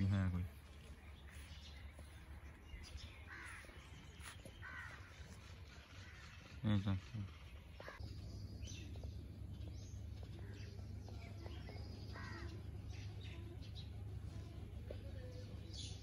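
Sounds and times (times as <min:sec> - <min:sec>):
birds chirping: 0:00.0 - 0:16.0
crow cawing: 0:03.3 - 0:03.7, 0:04.6 - 0:05.2, 0:12.1 - 0:12.6.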